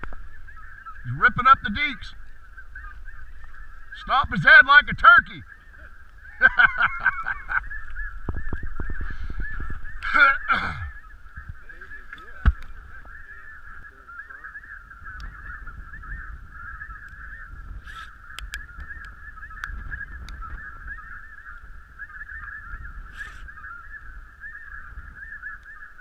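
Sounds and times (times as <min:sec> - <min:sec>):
snow geese calling: 0:00.0 - 0:26.0
faint clicks: 0:15.1 - 0:15.4, 0:17.9 - 0:20.6, 0:25.5 - 0:25.8.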